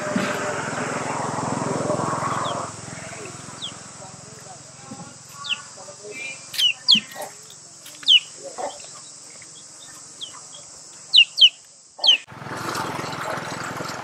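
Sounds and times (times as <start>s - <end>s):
steady rushing noise: 0.0s - 4.7s
high-pitched insect drone: 0.0s - 13.6s
bird whistling: 3.5s - 3.8s, 8.0s - 8.9s, 9.8s - 12.3s.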